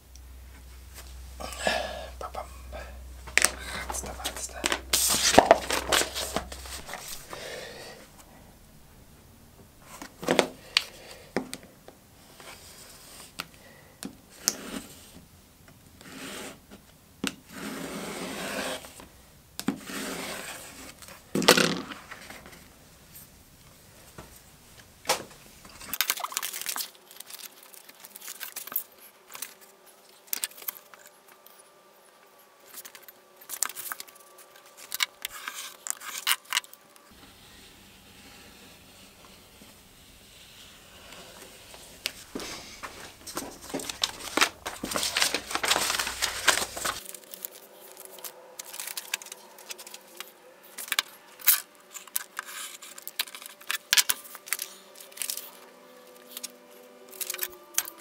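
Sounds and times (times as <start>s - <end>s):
faint steady hum: 0.0s - 58.0s
leather and paper rustling: 3.3s - 7.5s, 25.6s - 31.5s, 41.4s - 56.5s, 57.1s - 58.0s
rotary cutter scraping along ruler: 14.4s - 15.2s, 17.5s - 19.0s, 19.7s - 21.0s.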